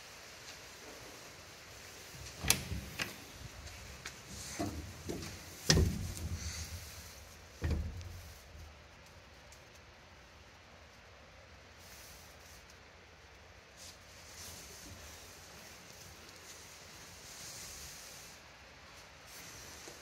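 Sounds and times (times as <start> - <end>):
metal clunks and knocks: 2.2 - 6.8, 7.6 - 8.2.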